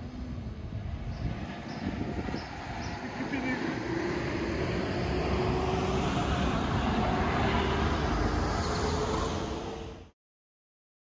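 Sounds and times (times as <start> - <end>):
outdoor rumble and rushing: 0.0 - 10.1.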